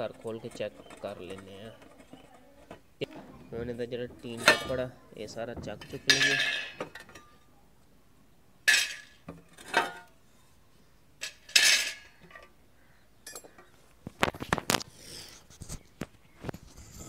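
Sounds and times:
metal burner caps clanking: 4.0s - 4.9s, 5.5s - 7.4s, 8.7s - 10.1s, 11.2s - 12.5s.

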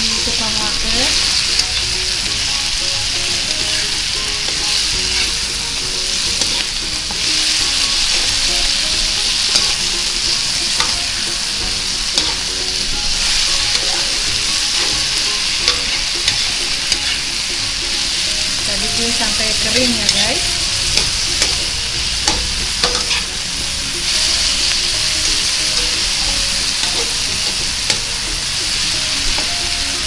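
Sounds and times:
food sizzling in hot oil: 0.0s - 30.0s
metal spatula scraping wok: 0.0s - 30.0s
spatula clicking against pan: 12.0s - 17.3s, 20.9s - 23.3s.

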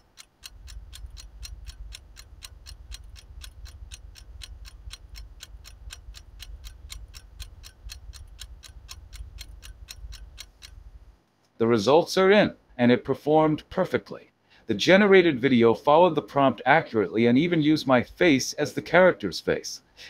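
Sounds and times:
stopwatch ticking: 0.0s - 11.1s
low hum: 0.0s - 11.2s.

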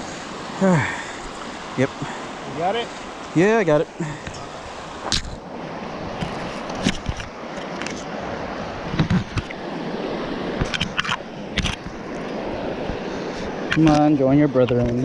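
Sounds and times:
flowing water: 0.0s - 15.0s.

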